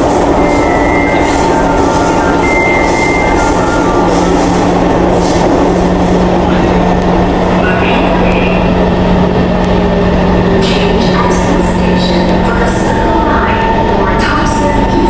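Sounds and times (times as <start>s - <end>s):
train rumbling in tunnel: 0.0s - 15.0s.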